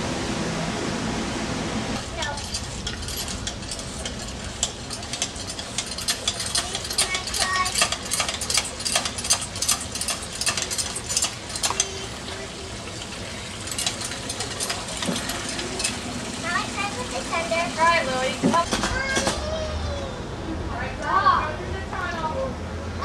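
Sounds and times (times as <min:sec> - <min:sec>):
fountain water splashing: 0:06.6 - 0:19.1.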